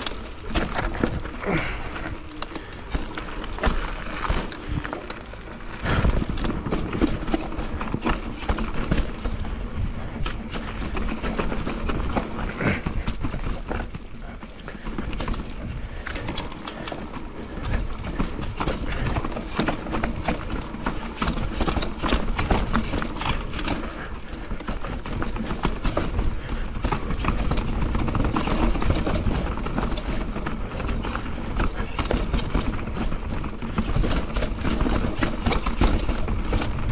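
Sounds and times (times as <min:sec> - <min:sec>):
bike clattering and rattling: 0:00.0 - 0:36.9.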